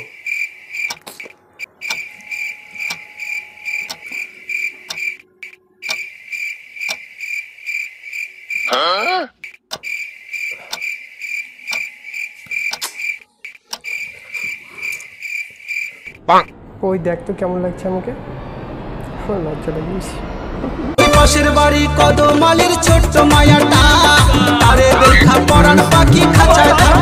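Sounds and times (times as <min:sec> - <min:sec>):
crickets chirping: 0:00.0 - 0:16.2
wavering voice-like cry: 0:08.7 - 0:09.4.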